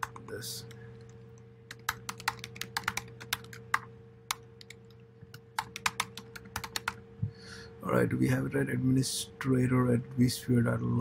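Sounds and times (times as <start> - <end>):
faint steady hum: 0.0 - 11.0
typing on computer keyboard: 1.7 - 4.8, 5.6 - 7.0.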